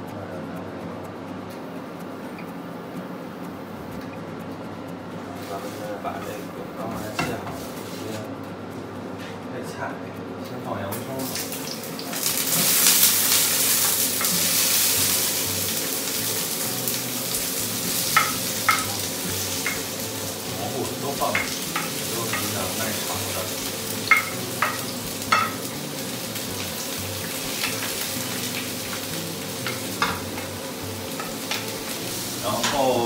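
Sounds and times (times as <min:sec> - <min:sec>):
vegetables sizzling in hot oil: 0:10.9 - 0:33.0
spatula tapping a pan: 0:12.1 - 0:20.5, 0:21.3 - 0:25.8, 0:26.7 - 0:32.0.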